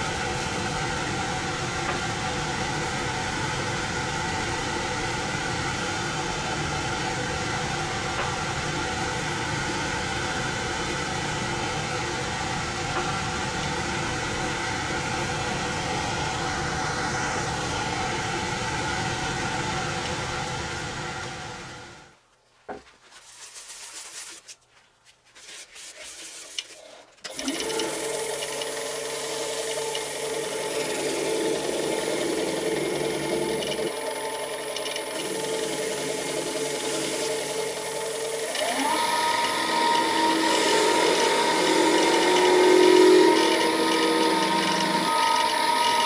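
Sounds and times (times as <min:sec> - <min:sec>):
wood lathe motor whine: 0:00.0 - 0:22.1, 0:27.3 - 0:46.0
tool rubbing spinning wood: 0:25.4 - 0:46.0.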